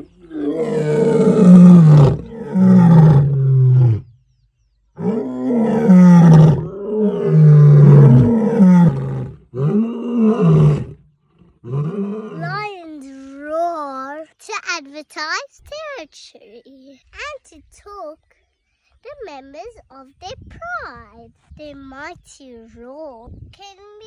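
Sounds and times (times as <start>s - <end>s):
lions roaring: 0.0s - 4.1s, 5.0s - 12.6s.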